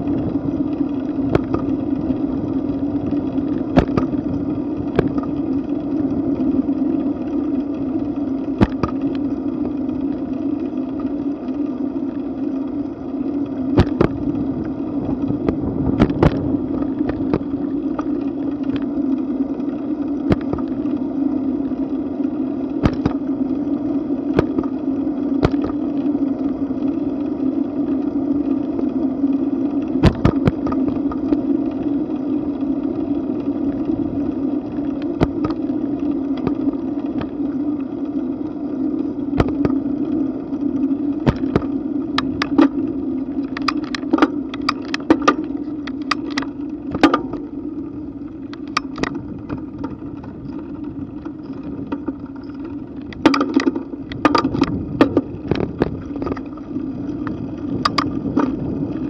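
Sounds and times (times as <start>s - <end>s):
bike rattling and knocking: 0.0s - 11.6s, 13.3s - 18.9s, 19.6s - 21.0s, 22.7s - 26.0s, 29.8s - 37.6s, 38.3s - 59.0s
tyre noise on asphalt: 0.0s - 59.0s
wind on microphone: 13.8s - 17.6s, 54.0s - 59.0s.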